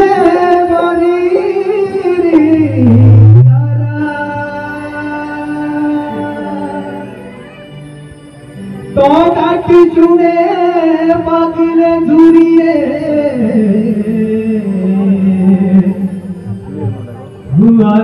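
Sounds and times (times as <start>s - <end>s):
person singing a long note: 0.0s - 7.5s
keyboard drone: 0.0s - 18.0s.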